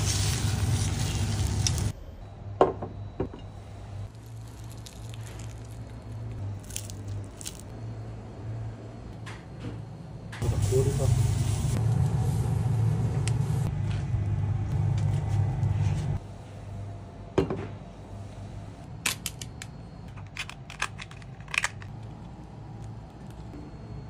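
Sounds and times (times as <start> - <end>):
low hum with faint crackle: 0.0 - 24.0
crab shells cracking: 4.1 - 7.7, 20.2 - 22.4.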